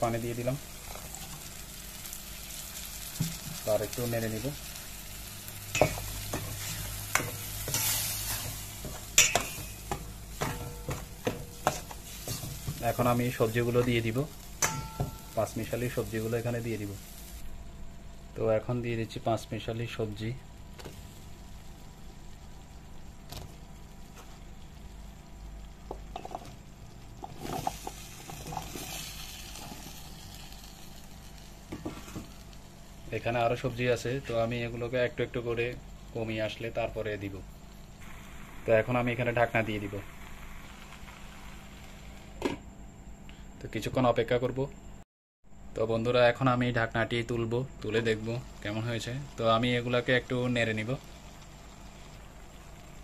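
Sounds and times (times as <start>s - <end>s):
sauce sizzling: 0.0s - 17.6s, 20.6s - 34.0s, 37.2s - 42.4s, 47.5s - 53.0s.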